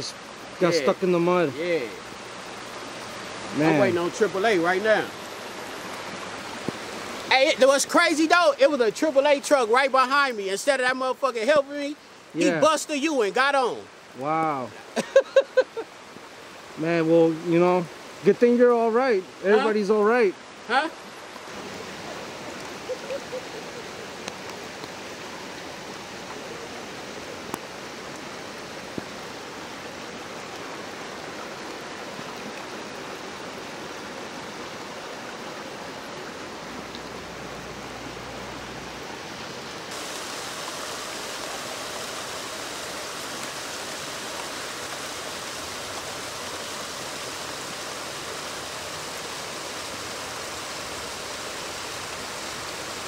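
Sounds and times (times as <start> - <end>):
rain on wet pavement: 0.0 - 53.0.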